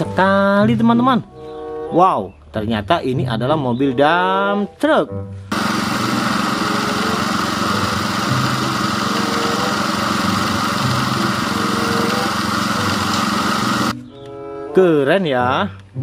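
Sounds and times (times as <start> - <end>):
diesel truck engine running: 5.5 - 14.0
sand rushing from tipper: 5.5 - 14.0.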